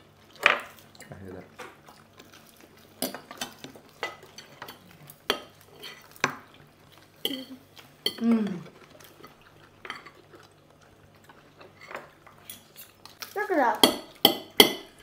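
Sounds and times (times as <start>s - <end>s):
cutlery clinking on plates: 7.2s - 8.2s
person humming mm: 8.1s - 8.8s.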